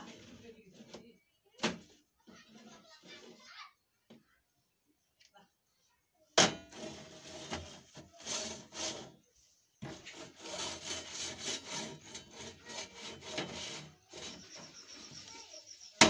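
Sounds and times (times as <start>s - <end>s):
object scraping on hard box: 0.0s - 1.1s, 1.7s - 3.6s, 6.4s - 15.7s.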